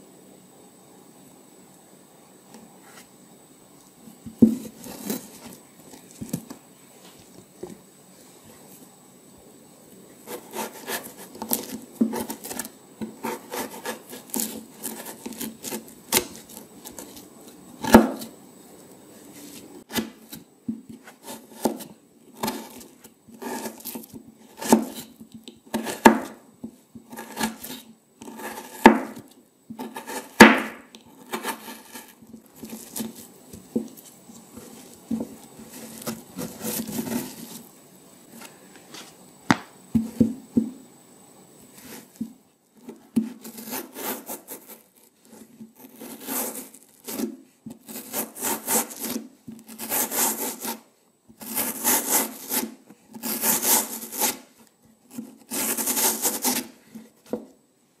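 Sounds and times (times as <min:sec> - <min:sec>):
knife scraping melon flesh: 0:04.5 - 0:06.5, 0:10.2 - 0:18.3, 0:19.4 - 0:26.4, 0:27.0 - 0:37.7, 0:42.8 - 0:57.4
crisp knife cuts: 0:19.9 - 0:25.1.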